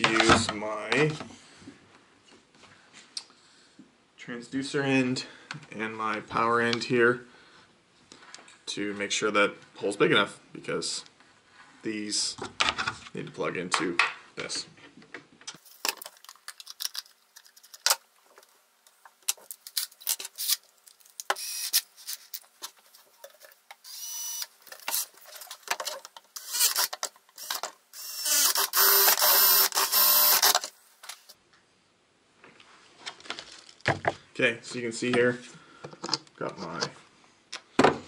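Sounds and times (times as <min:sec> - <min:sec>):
drill boring through plastic: 0:21.3 - 0:21.8, 0:23.8 - 0:25.0, 0:26.4 - 0:31.3
clicks and knocks of handling: 0:24.6 - 0:26.3.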